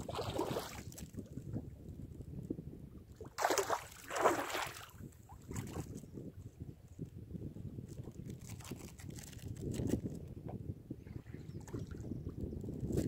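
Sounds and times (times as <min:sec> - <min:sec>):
wind rumble on microphone: 0:00.0 - 0:13.0
fish splashing in water: 0:03.4 - 0:04.9.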